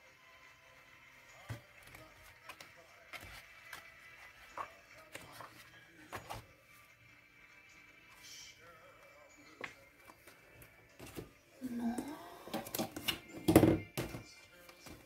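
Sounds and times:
paper rustling: 1.8s - 6.5s.

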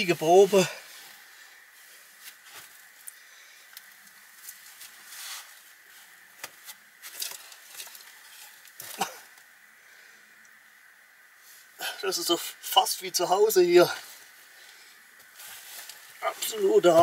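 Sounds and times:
rustling of woven mat: 0.0s - 9.2s, 13.9s - 17.0s.

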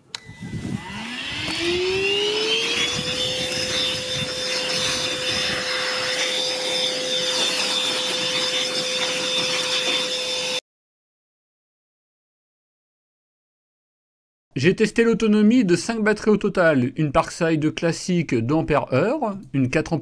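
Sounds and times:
wet dry vacuum motor whine: 0.0s - 10.6s.

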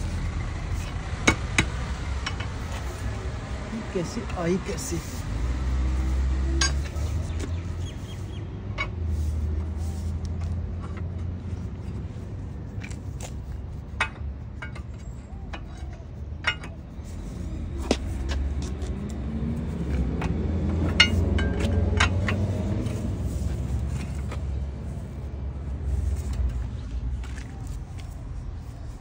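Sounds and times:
metal bar striking steel grate: 20.7s - 23.0s.

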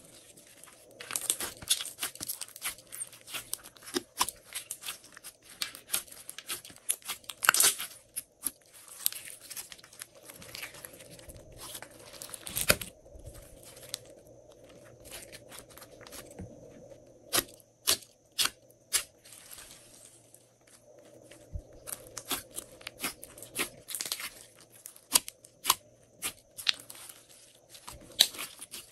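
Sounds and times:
slime crackling: 0.2s - 14.1s.

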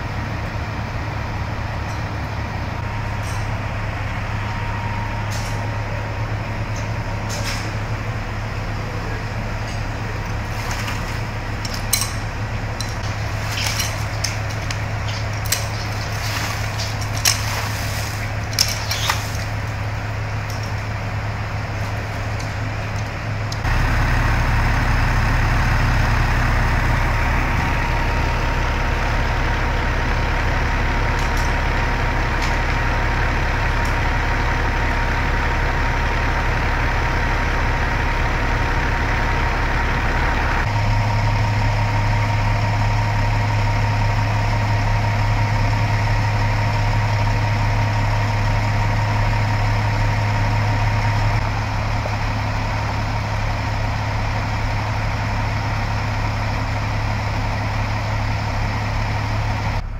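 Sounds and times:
fire engine idling hum: 0.0s - 59.9s.

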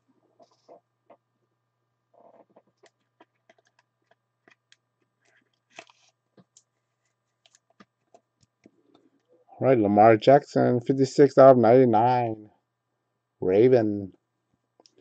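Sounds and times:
faint low hum: 0.0s - 15.0s
clicks and crinkles of cards: 2.2s - 9.3s.

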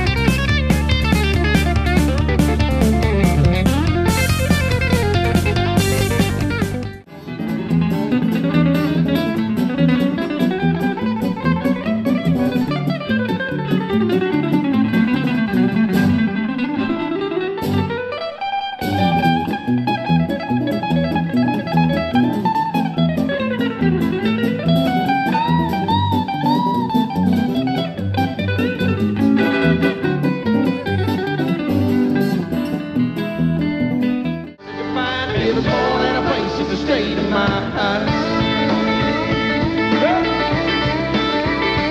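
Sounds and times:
electric guitar fast picked runs: 0.0s - 7.0s
acoustic guitar accompaniment: 0.0s - 41.9s.

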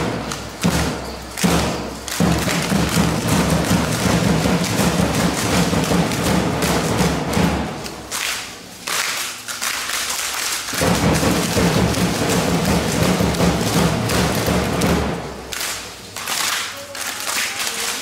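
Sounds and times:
festival music: 0.0s - 8.8s, 10.7s - 16.0s
drum beating steady rhythm: 0.0s - 9.0s, 10.7s - 16.0s.

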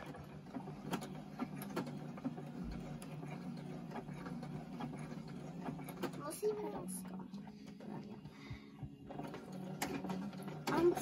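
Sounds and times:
sewing machine stitching: 0.0s - 8.3s, 9.0s - 11.0s.

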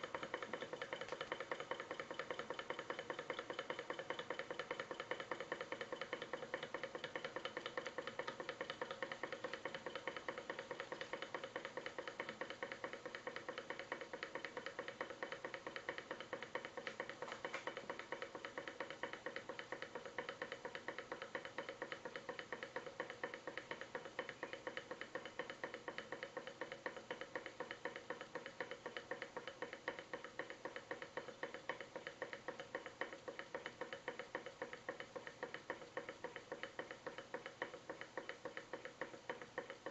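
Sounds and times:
model engine clicking rapidly: 0.0s - 39.9s.

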